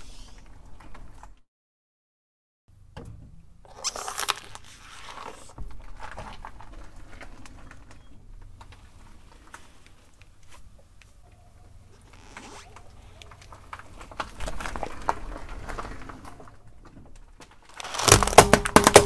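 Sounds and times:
tyre rolling on asphalt rumble: 0:03.6 - 0:10.8, 0:11.7 - 0:19.0
plastic balls cracking under tyre: 0:03.6 - 0:11.2, 0:12.0 - 0:19.0
grit and plastic crackling: 0:03.6 - 0:19.0.

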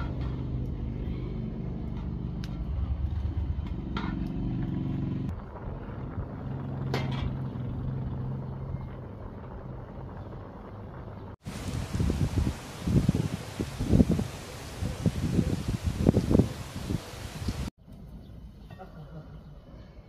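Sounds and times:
wood fire rumbling: 0:00.0 - 0:14.5.

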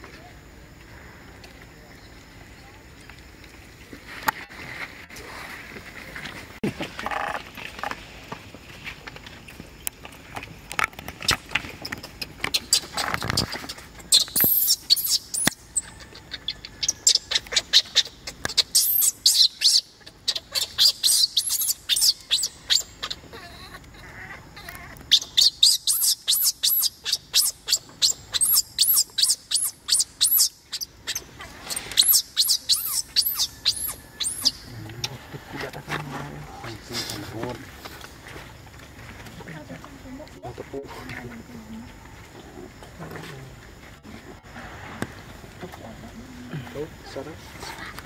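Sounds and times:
baby monkey crying squeals: 0:12.5 - 0:34.7.

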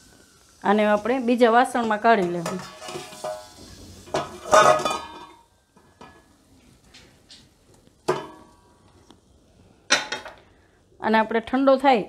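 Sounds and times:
metal cookware clanking: 0:00.8 - 0:06.4, 0:08.0 - 0:08.6, 0:09.9 - 0:10.4.

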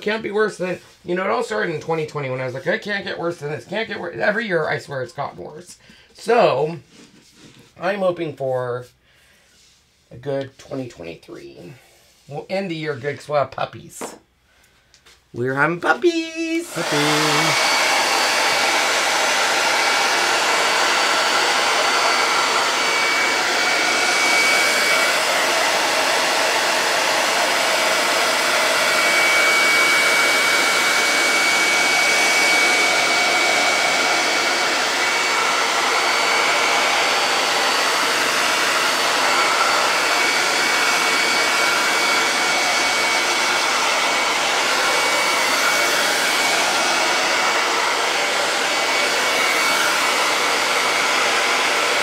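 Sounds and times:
hot-air blower rushing air: 0:00.0 - 0:04.0, 0:16.2 - 0:52.0.

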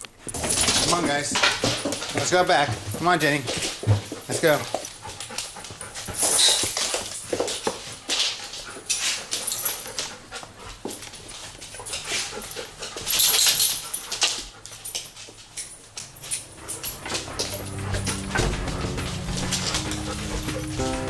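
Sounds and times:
dogs breathing hard and sniffing: 0:00.0 - 0:21.0
scuffling: 0:14.4 - 0:21.0.

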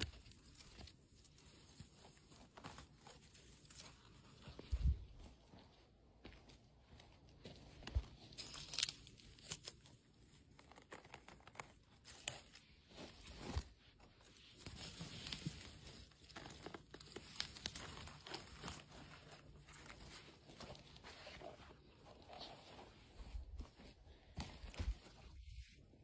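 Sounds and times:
twigs crackling and snapping: 0:00.0 - 0:05.3, 0:07.3 - 0:22.5
footsteps on forest floor: 0:00.0 - 0:09.8, 0:11.4 - 0:25.6.

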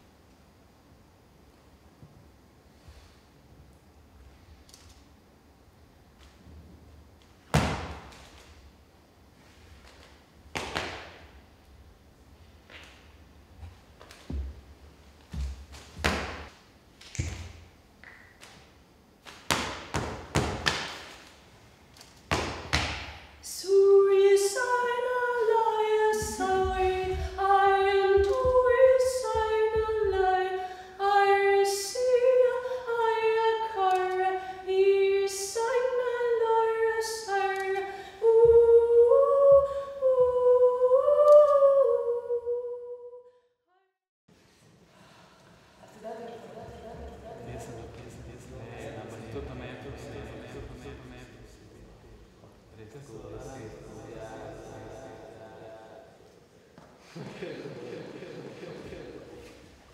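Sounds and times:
woman singing unaccompanied: 0:23.4 - 0:43.2.

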